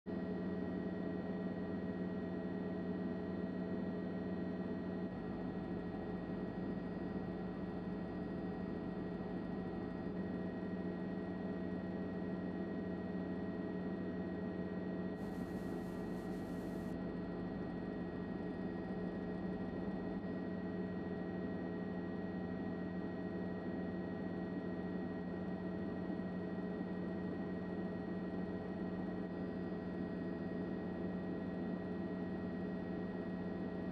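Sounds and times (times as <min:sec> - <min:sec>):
steady hum and hiss with tones: 0:15.2 - 0:17.0.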